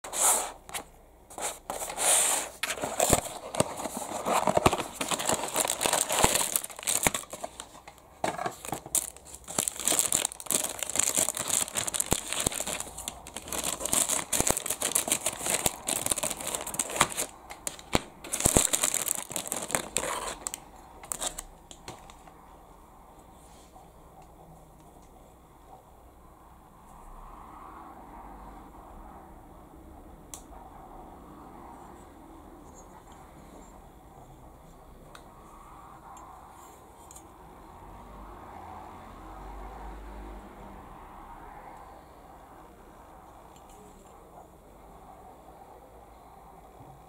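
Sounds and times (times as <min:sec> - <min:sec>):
cardboard packaging opened: 0:00.1 - 0:22.2
plastic bag crinkling: 0:02.6 - 0:21.4.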